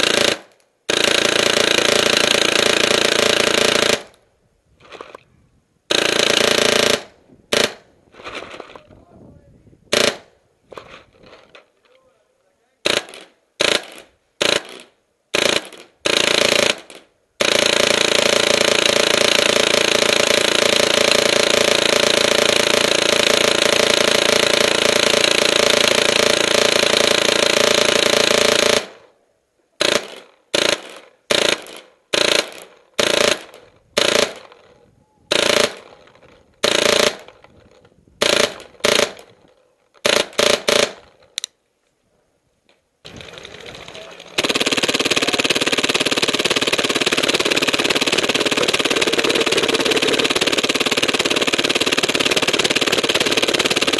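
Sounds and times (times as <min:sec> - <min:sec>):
paintball marker firing bursts: 0:00.0 - 0:04.2, 0:05.9 - 0:08.8, 0:09.9 - 0:11.6, 0:12.8 - 0:29.0, 0:29.8 - 0:34.7, 0:35.3 - 0:37.5, 0:38.2 - 0:39.4, 0:40.0 - 0:41.5, 0:44.4 - 0:53.9.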